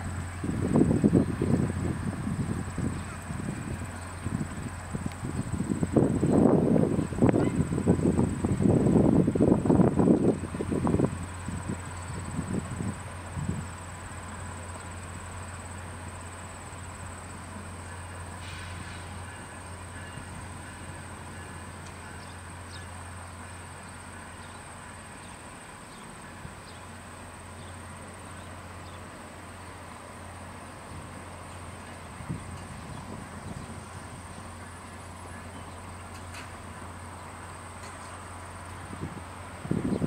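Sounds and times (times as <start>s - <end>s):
diesel locomotive drone: 0.0s - 40.0s
high-pitched insect whine: 0.1s - 28.7s.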